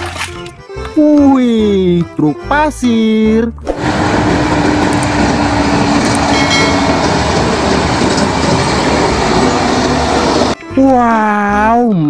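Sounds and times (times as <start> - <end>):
heavy trucks rumbling past on gravel: 3.8 - 10.6.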